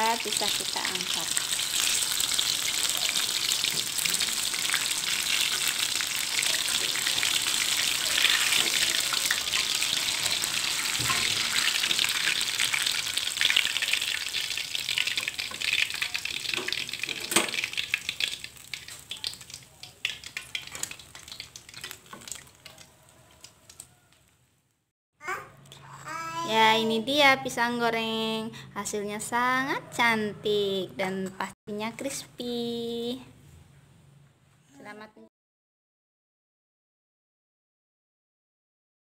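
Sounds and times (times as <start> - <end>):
deep-frying sizzle and crackles: 0.0 - 24.4.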